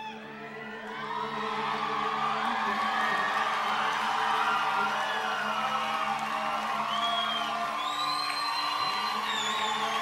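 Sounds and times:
concert crowd cheering: 0.0 - 10.0
loud whistles: 6.8 - 10.0.

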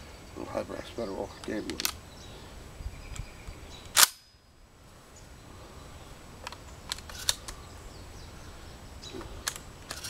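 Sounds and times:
shotgun clicks: 3.8 - 4.3, 6.4 - 7.6.

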